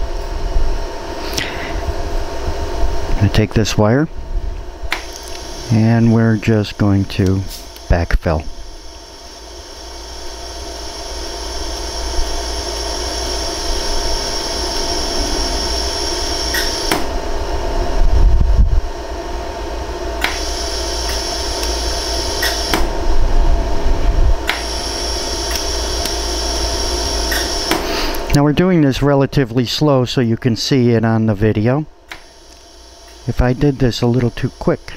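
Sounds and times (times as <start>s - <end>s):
welder fan hum: 0.0s - 34.9s
sharp laser pulse clicks: 4.9s - 5.8s, 15.6s - 17.1s, 20.2s - 22.9s, 24.4s - 27.8s.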